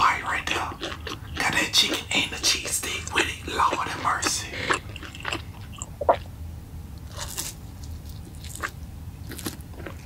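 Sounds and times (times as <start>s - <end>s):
fried chicken crunching: 0.5s - 2.0s, 4.2s - 6.2s, 7.0s - 10.0s.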